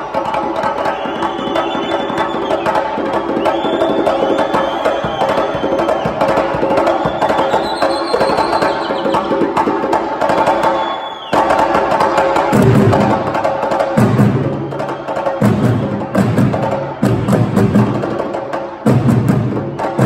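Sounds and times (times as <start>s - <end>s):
djembe drums in fast rhythm: 0.0s - 20.0s.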